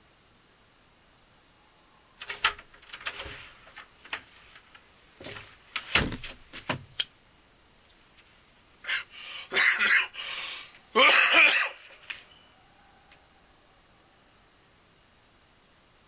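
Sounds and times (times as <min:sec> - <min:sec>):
short rustling noises: 0:02.2 - 0:06.9
sharp knocks and clunks: 0:05.2 - 0:07.0.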